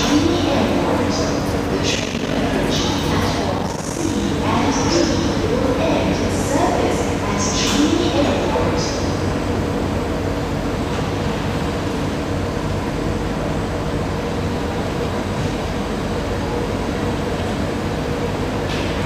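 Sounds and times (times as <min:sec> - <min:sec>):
train hum and air-handling noise: 0:00.0 - 0:19.0.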